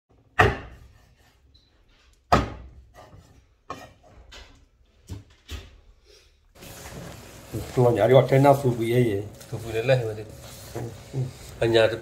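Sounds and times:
cleaver chopping meat on wood: 0.4 - 0.8, 2.3 - 2.7.

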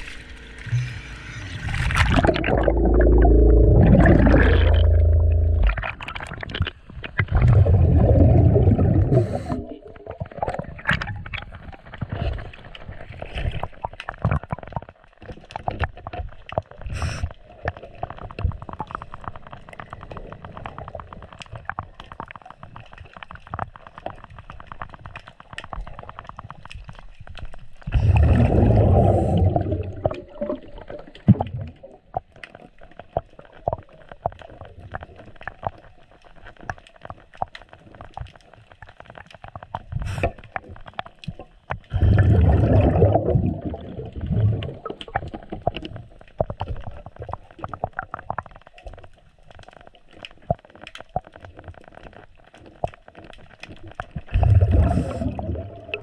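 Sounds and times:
underwater exhaled bubbles rushing: 0.0 - 22.4, 27.6 - 35.8, 39.9 - 48.7, 53.2 - 56.0.

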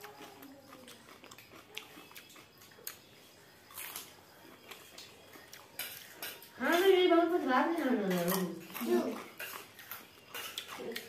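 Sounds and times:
spoon clinking on steel plates: 5.0 - 11.0
woman's voice: 6.6 - 9.2.

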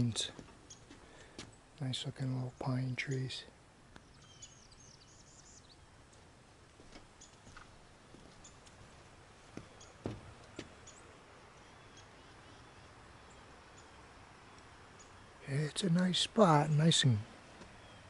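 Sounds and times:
bird chirps: 4.0 - 5.9, 9.6 - 15.4, 17.7 - 18.0.

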